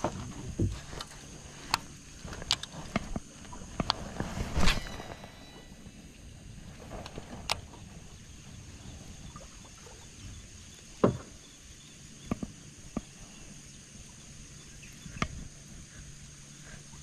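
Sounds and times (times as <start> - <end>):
faint high-pitched hum: 0.0 - 17.0
hollow knocks on boat: 11.0 - 11.4.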